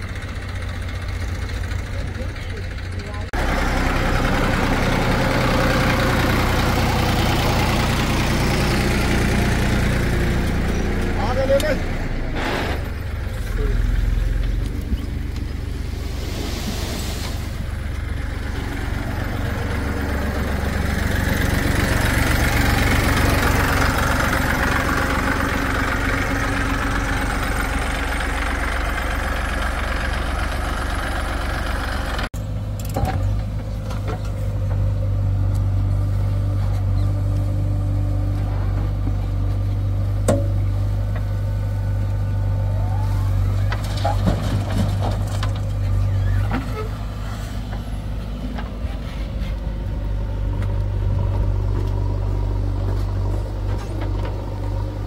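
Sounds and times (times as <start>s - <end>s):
diesel engines running: 0.0s - 55.0s
broad hiss: 16.0s - 17.6s.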